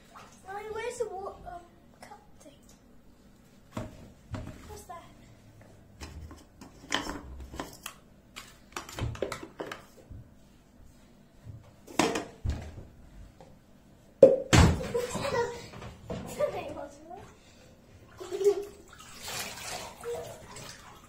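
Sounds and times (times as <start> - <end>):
knocks and scrapes against bathtub: 3.6 - 4.9.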